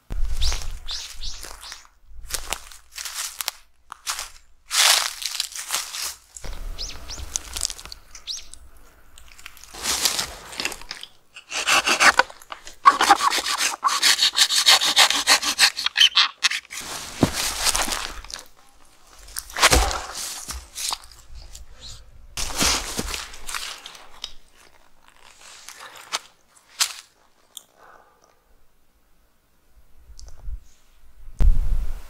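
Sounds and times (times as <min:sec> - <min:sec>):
wood crunches and knocks: 0:09.3 - 0:21.2
hand saw rasping through wood: 0:11.4 - 0:16.8.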